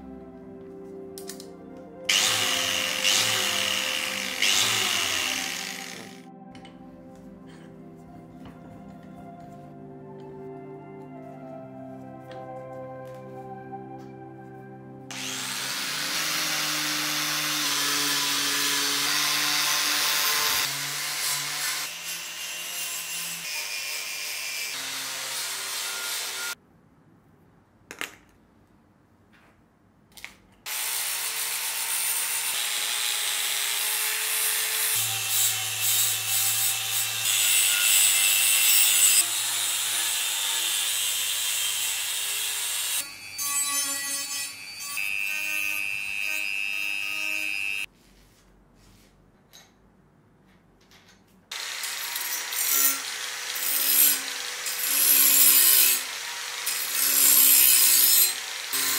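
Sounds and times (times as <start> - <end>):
soft background music: 0.0 - 20.9
angle grinder grinding metal: 2.1 - 6.3, 15.1 - 26.6, 30.7 - 47.9, 51.5 - 58.9.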